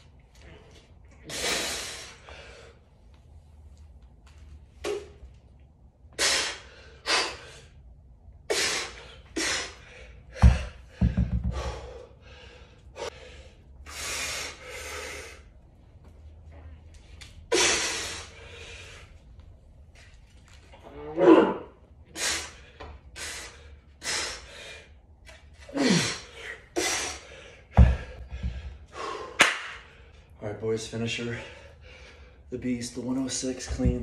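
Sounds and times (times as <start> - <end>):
man gasping breaths: 8.5 - 15.5, 25.7 - 30.2
kettlebell thud on rubber floor: 10.4 - 11.7, 27.8 - 28.7.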